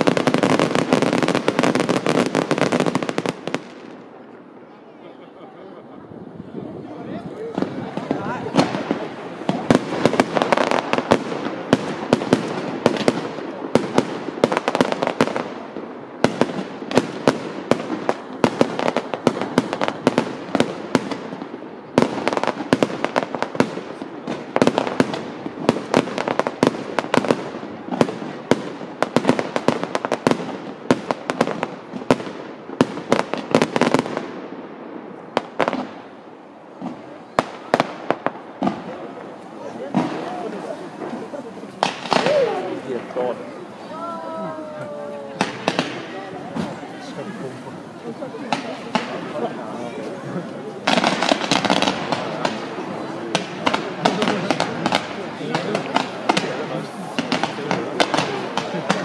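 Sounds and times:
fireworks bangs and crackles: 0:00.0 - 0:59.0.

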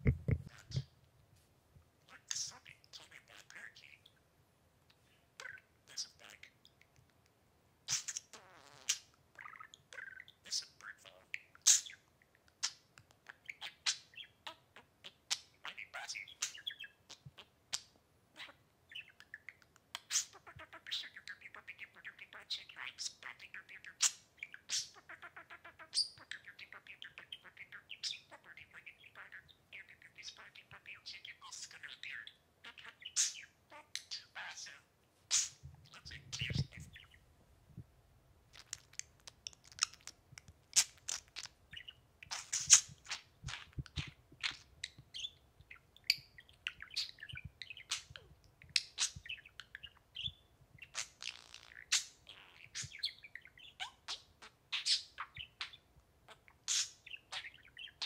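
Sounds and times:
budgerigar chirping: 0:18.4 - 0:37.2, 0:40.8 - 0:58.0.

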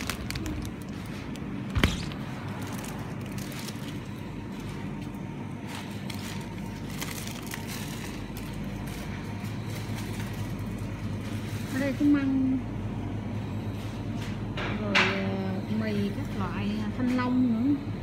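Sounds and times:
plastic packaging crinkling: 0:00.0 - 0:12.0
refrigerator hum: 0:00.0 - 0:18.0.

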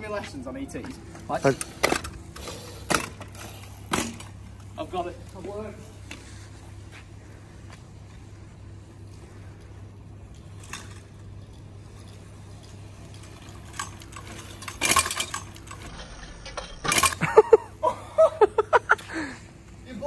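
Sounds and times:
bike clattering against metal rail: 0:00.8 - 0:04.4, 0:10.2 - 0:17.6.

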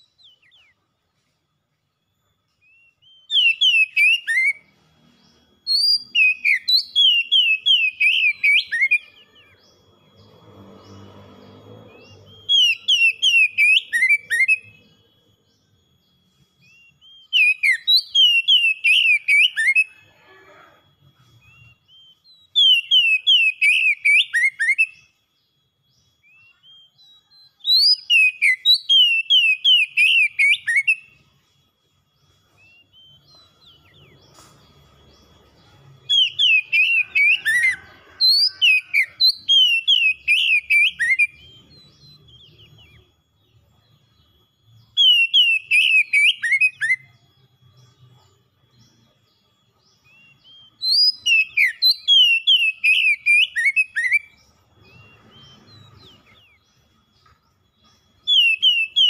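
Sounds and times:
bird song whistles: 0:00.0 - 0:00.9, 0:02.0 - 0:59.0
faint high tone: 0:19.9 - 0:21.9.

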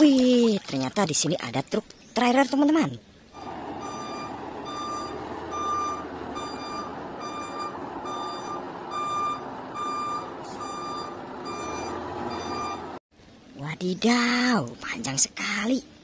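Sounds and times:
truck engine running: 0:03.4 - 0:13.0
truck reversing alarm beeping: 0:03.4 - 0:13.0.

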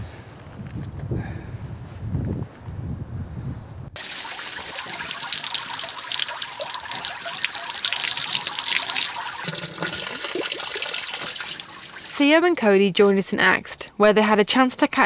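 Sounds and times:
water splashing from hose: 0:04.0 - 0:12.2.

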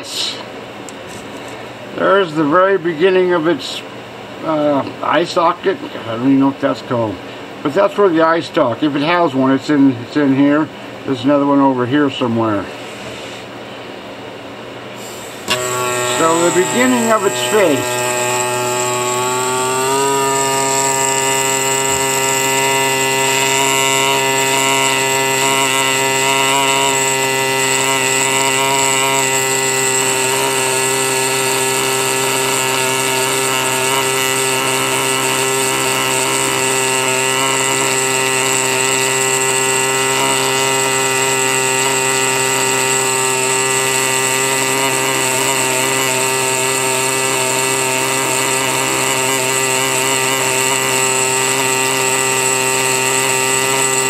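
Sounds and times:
air scribe buzzing: 0:12.6 - 0:13.6, 0:14.8 - 0:54.0.

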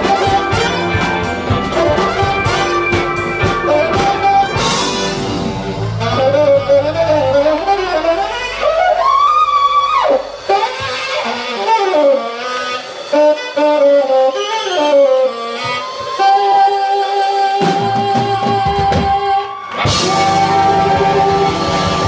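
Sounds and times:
low band sounds: 0:00.0 - 0:22.0
saxophone solo: 0:00.0 - 0:22.0.

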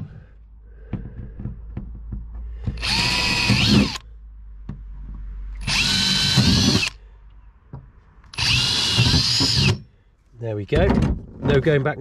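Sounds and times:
power drill drilling metal: 0:02.8 - 0:04.0, 0:05.6 - 0:07.0, 0:08.3 - 0:09.8.

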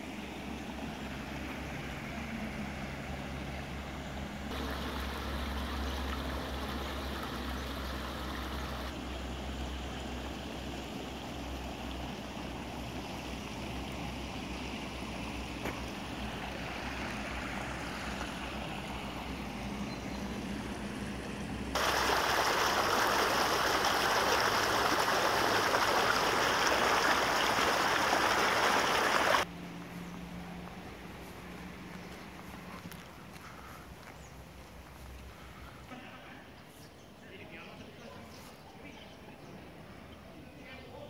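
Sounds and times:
close loud rush of water: 0:04.5 - 0:09.0, 0:21.8 - 0:29.5
stream rushing in channel: 0:04.5 - 0:19.6, 0:21.7 - 0:29.5.

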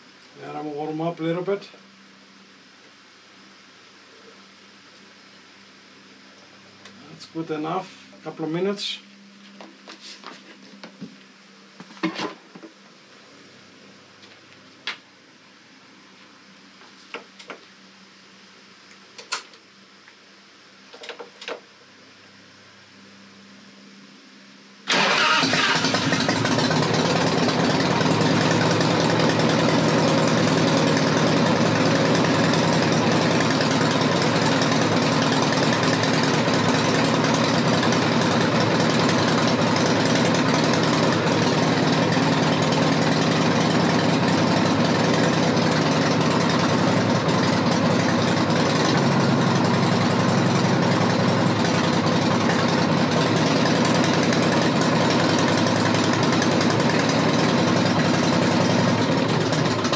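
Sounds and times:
motorcycle engine idling: 0:25.6 - 0:59.9.

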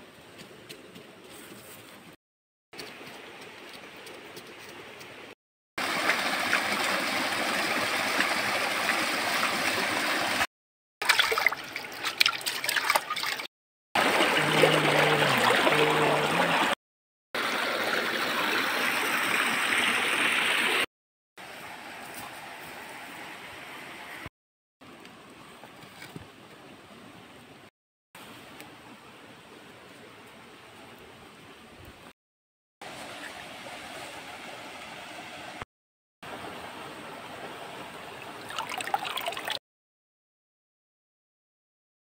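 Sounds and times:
stream flowing over rocks: 0:05.8 - 0:16.8, 0:17.4 - 0:24.3, 0:32.9 - 0:35.6, 0:36.3 - 0:39.6
pot splashing in water: 0:11.0 - 0:16.8, 0:38.4 - 0:39.6.

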